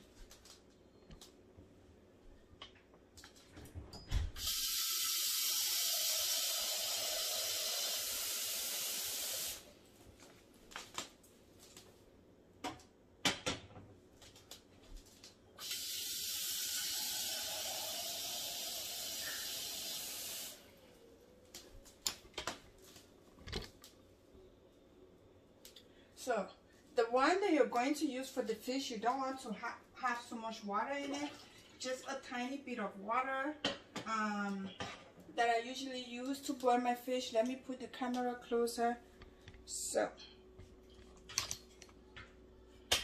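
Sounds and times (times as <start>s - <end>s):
faucet running water into a pot: 4.4s - 9.7s, 15.6s - 20.7s.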